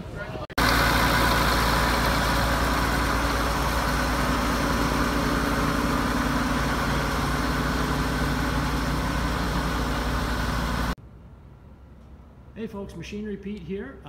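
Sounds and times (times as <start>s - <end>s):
tractor diesel engine running: 0.6s - 11.0s.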